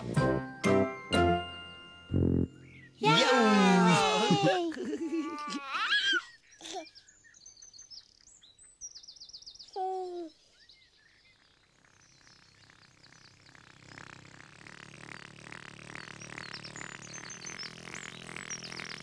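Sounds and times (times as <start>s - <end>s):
faint outdoor ambience: 0.0s - 19.0s
birds chirping and trilling: 2.5s - 19.0s
baby cooing: 3.0s - 6.8s.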